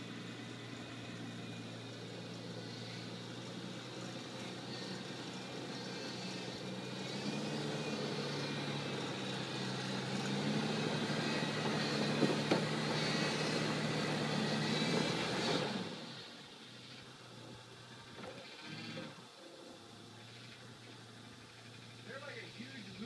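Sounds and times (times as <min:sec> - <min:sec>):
truck engine under load: 0:00.0 - 0:23.0.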